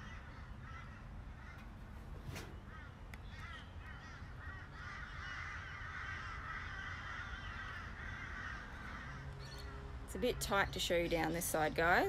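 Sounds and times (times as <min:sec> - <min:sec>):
flock of birds chattering: 0:00.0 - 0:12.0.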